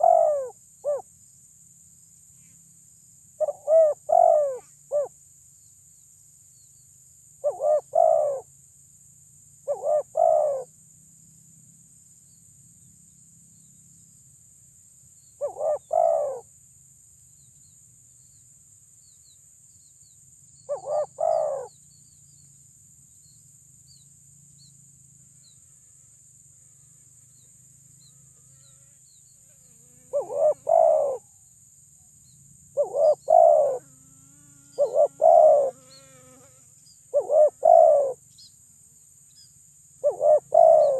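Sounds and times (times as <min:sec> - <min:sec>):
dove cooing: 0:00.0 - 0:01.0, 0:03.4 - 0:05.1, 0:07.4 - 0:08.4, 0:09.7 - 0:10.7, 0:15.4 - 0:16.4, 0:20.7 - 0:21.7, 0:30.1 - 0:31.2, 0:32.8 - 0:33.9, 0:34.8 - 0:36.2, 0:37.1 - 0:38.2, 0:40.0 - 0:40.9.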